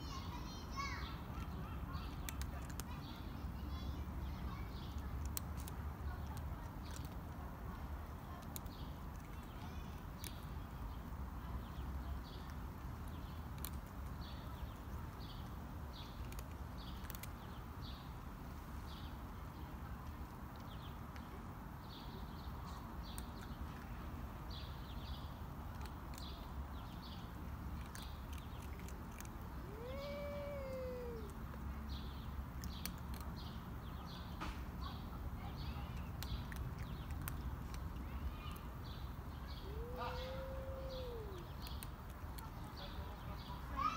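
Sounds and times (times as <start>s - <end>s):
cat yowling: 29.1s - 31.4s, 39.6s - 41.5s.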